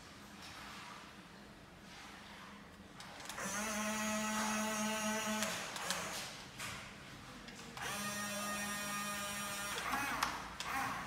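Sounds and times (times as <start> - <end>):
electric gear motors whining: 3.3 - 6.2, 7.8 - 11.0.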